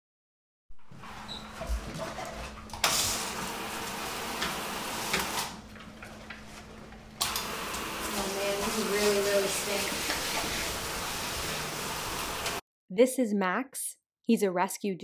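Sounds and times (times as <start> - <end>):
hose nozzle spraying water: 7.4 - 12.6.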